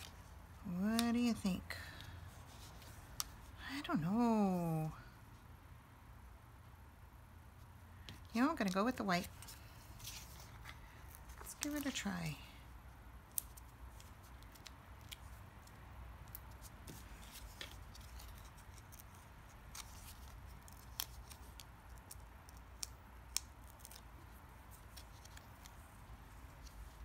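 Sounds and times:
hands handling cardstock: 0:00.0 - 0:03.5, 0:08.0 - 0:12.1, 0:13.3 - 0:27.0.

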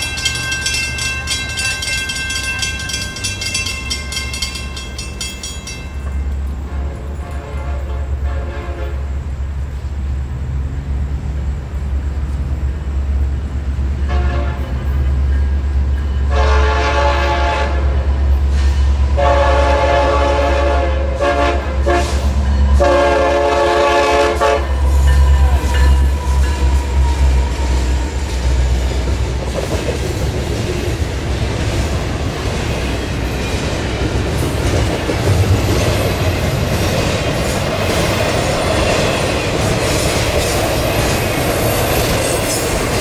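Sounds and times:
train cars clacking and rattling: 0:00.0 - 0:10.9, 0:11.6 - 0:43.0
diesel engines rumbling: 0:00.0 - 0:43.0
train air horn blasts: 0:06.6 - 0:09.2, 0:14.0 - 0:15.0, 0:16.3 - 0:18.2, 0:19.1 - 0:28.0.

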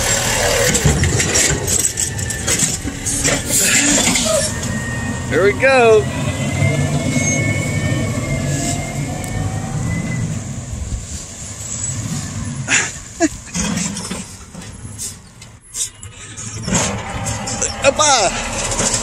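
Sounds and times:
diesel truck engine drone: 0:00.0 - 0:19.0.

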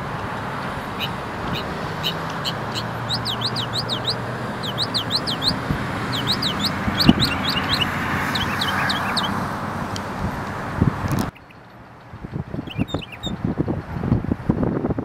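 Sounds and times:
steady background noise: 0:00.0 - 0:14.4
mockingbird singing: 0:01.0 - 0:09.4, 0:11.3 - 0:11.7, 0:12.6 - 0:13.4.

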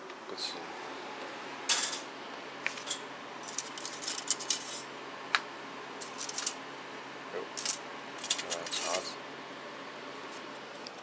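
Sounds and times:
plastic cutlery rattling in metal cup: 0:03.4 - 0:04.8, 0:06.0 - 0:06.6, 0:07.6 - 0:09.0.

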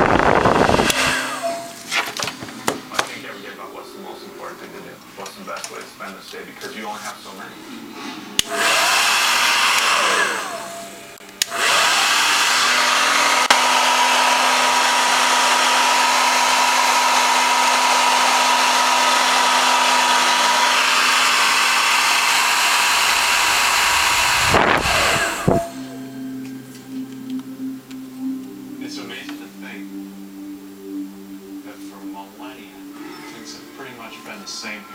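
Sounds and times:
hair dryer blowing: 0:00.0 - 0:02.9, 0:08.4 - 0:26.0
hair dryer switch click: 0:08.4 - 0:08.8, 0:09.7 - 0:11.7.

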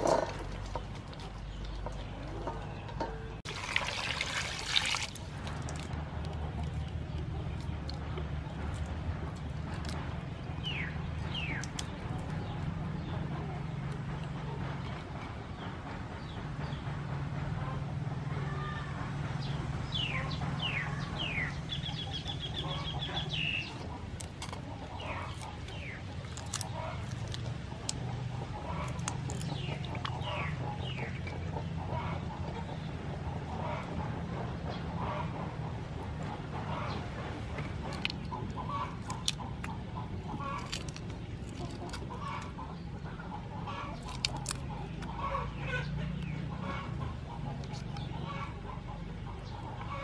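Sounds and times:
chickens clucking: 0:00.0 - 0:03.5, 0:05.4 - 0:18.7, 0:19.9 - 0:50.0
birds calling: 0:00.0 - 0:16.9, 0:19.4 - 0:50.0
splashes in a steel bowl: 0:03.5 - 0:05.9.

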